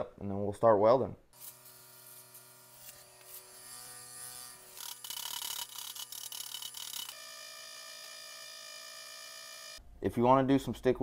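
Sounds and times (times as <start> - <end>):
bench grinder humming: 1.4 - 9.8.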